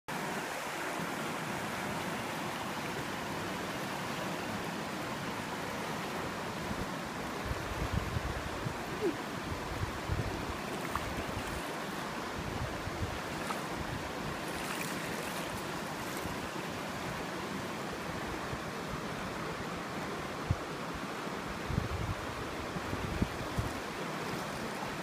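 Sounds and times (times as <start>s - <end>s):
river water flowing: 0.1s - 25.0s
wind buffeting microphone: 7.4s - 16.5s, 21.6s - 24.0s.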